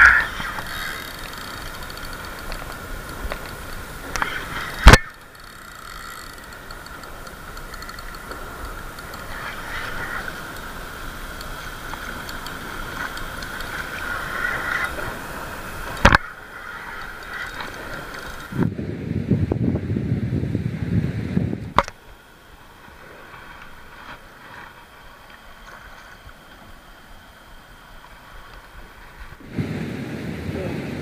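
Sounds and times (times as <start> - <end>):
sharp reel clicks: 0.0 - 15.0, 16.8 - 18.5
spinning reel gears whirring: 0.0 - 18.6.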